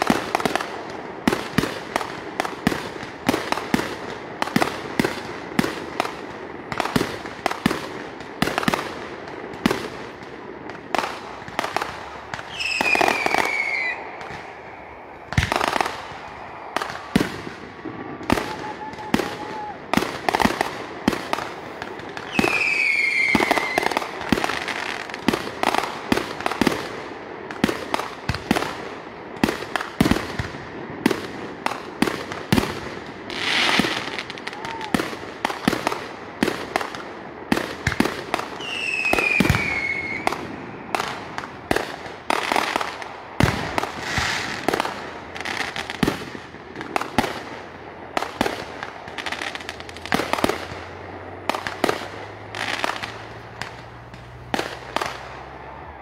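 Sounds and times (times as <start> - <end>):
fireworks banging and crackling: 0.0 - 56.0
falling firework whistle: 12.4 - 20.1, 22.2 - 24.9, 33.3 - 35.1, 38.6 - 41.1.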